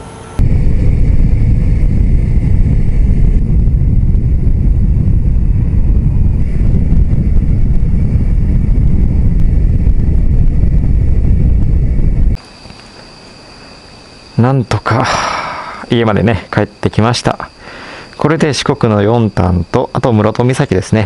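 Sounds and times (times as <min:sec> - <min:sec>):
wind buffeting microphone: 0:00.4 - 0:12.4.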